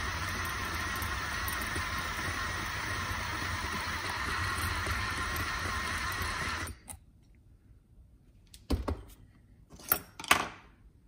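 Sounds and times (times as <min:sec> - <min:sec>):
power drill stopping: 0:00.0 - 0:06.8.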